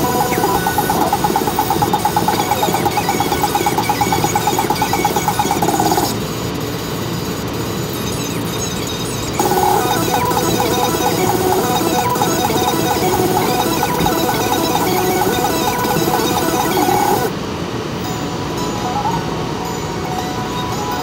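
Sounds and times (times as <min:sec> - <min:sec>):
rapid pulsing tone: 0:00.0 - 0:06.1, 0:09.4 - 0:17.3.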